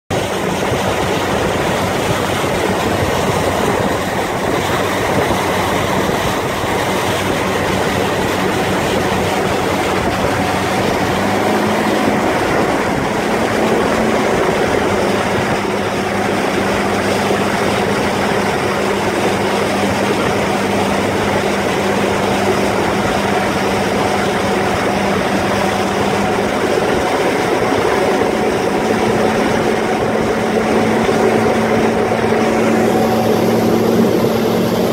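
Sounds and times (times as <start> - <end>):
outboard motor drone: 0.0 - 34.9
rushing water: 0.0 - 34.9
wind: 0.0 - 34.9.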